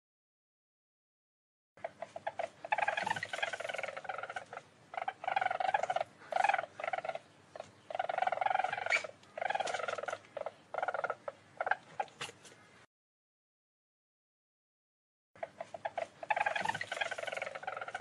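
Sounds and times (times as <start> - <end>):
weasel chattering trills: 1.8 - 12.5, 15.4 - 18.0.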